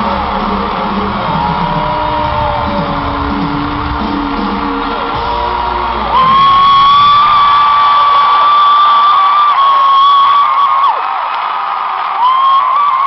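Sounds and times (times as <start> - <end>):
amplified live pop music: 0.0 - 10.9
crowd screaming and whooping: 0.0 - 13.0
high-pitched scream: 4.8 - 11.0.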